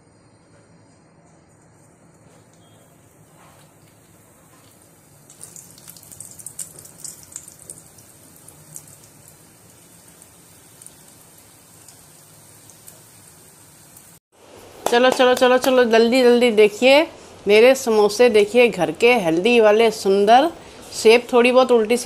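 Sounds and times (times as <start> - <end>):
frying oil crackling pops: 3.6 - 14.2.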